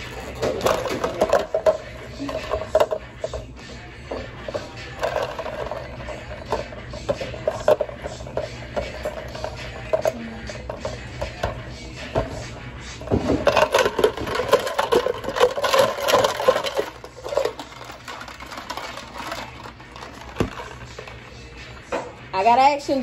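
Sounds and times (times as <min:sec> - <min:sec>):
glassware clattering: 0:00.0 - 0:03.4, 0:13.1 - 0:21.1.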